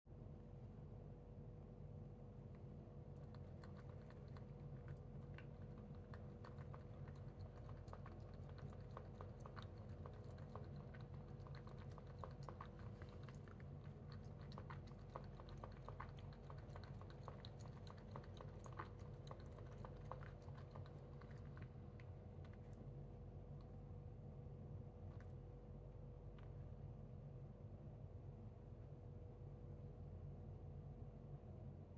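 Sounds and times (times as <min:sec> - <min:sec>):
cat lapping water: 0:03.1 - 0:23.8.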